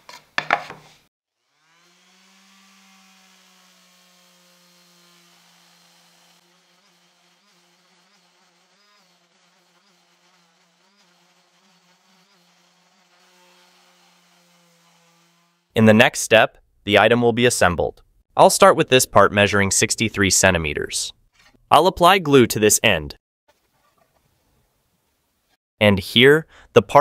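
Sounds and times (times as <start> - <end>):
orbital sander sanding wood: 1.5 - 15.7.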